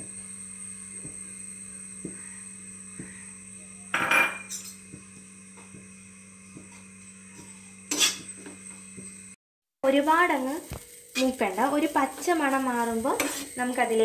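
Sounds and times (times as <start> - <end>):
faint hum: 0.0 - 14.0
spoon scraping frying pan: 7.9 - 8.6, 13.0 - 13.6.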